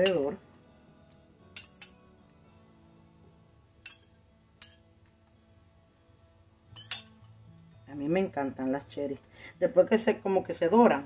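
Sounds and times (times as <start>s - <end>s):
metal fork clinking on bowl: 0.0s - 0.3s, 1.6s - 2.0s, 3.8s - 4.8s, 6.8s - 7.2s
faint background music: 0.0s - 11.0s.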